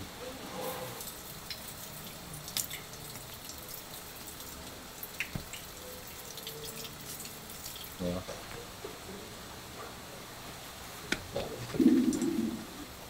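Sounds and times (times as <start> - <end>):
water running and dripping: 1.0 - 8.4, 11.7 - 12.6.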